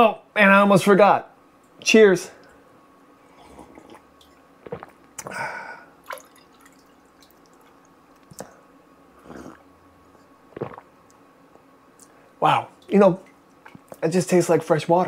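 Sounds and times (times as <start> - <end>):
person sipping water: 3.3 - 10.9
water pouring into glass: 6.0 - 7.7.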